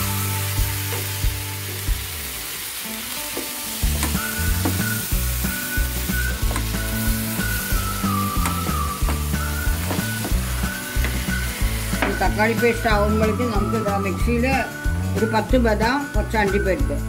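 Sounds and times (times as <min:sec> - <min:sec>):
food sizzling in a frying pan: 0:00.0 - 0:13.6.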